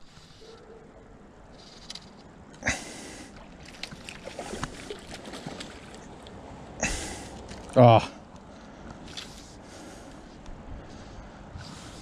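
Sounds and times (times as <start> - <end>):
creek water running: 2.6 - 8.5.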